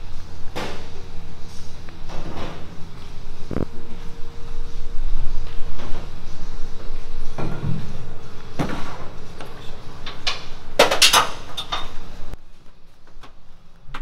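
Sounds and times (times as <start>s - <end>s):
workshop room noise: 0.0s - 14.0s.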